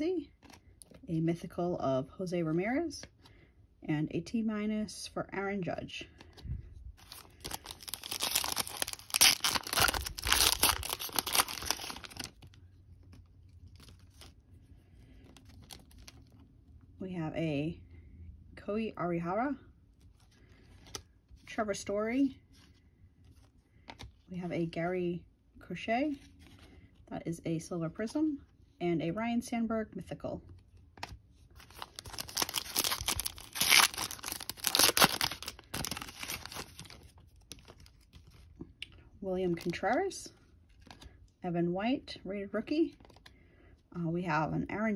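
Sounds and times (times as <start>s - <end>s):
foil wrapper tearing and crinkling: 7.0s - 12.6s, 15.4s - 16.3s, 31.6s - 38.1s.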